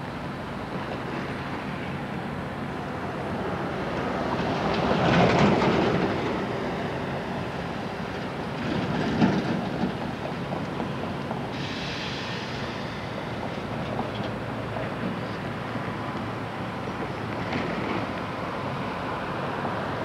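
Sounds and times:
train wheels clicking over rail joints: 3.9s - 6.9s, 7.8s - 18.5s.

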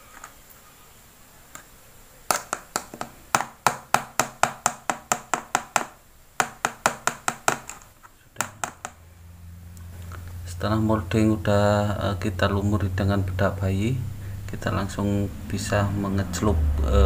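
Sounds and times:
wooden skewer tapping plastic cup: 2.3s - 9.0s.

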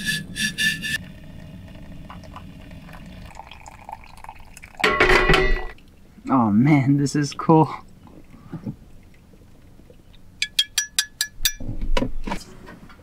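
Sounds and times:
high-pitched bursts: 0.0s - 1.1s
boiling water pouring from kettle: 1.0s - 6.0s.

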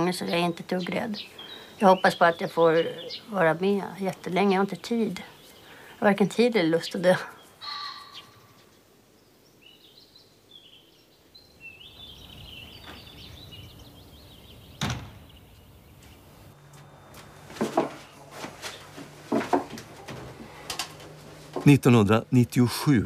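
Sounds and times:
small birds chirping: 0.0s - 17.0s
door being handled: 14.8s - 15.3s.

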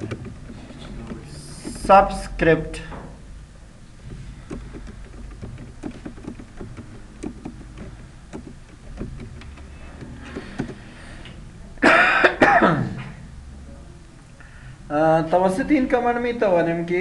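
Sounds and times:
keyboard typing: 0.0s - 2.4s, 4.0s - 11.4s.

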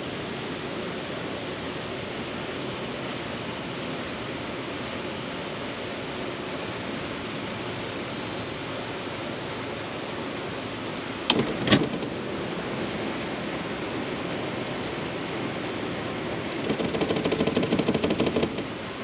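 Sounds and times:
river water rushing: 0.0s - 19.0s
sharp knocks: 16.6s - 18.7s.

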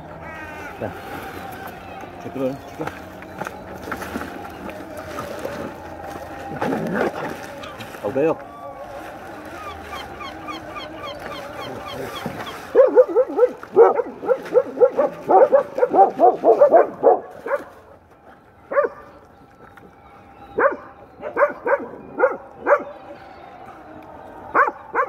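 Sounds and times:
dogs barking: 9.6s - 17.9s, 18.7s - 19.1s, 20.6s - 23.0s, 24.5s - 25.0s.

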